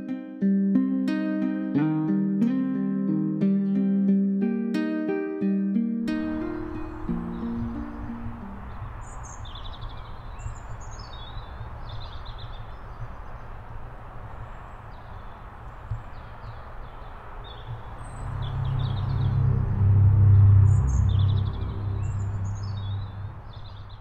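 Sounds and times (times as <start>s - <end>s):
small birds chirping: 6.2s - 24.0s
low outdoor rumble: 17.2s - 24.0s
low droning hum: 17.7s - 24.0s.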